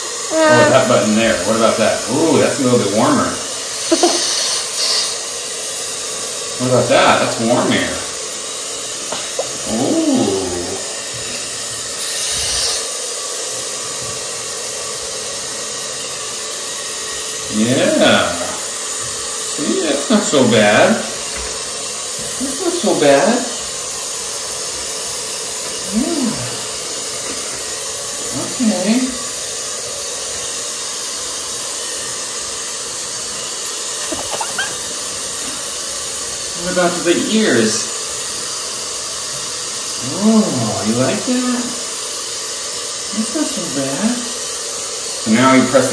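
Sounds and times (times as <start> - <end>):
pet dryer blowing air: 0.0 - 45.9.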